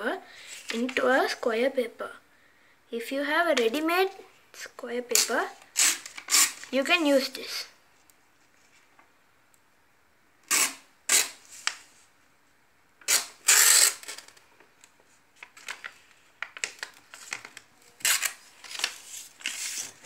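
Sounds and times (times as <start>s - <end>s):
paper rustling and crackling: 14.0s - 20.0s.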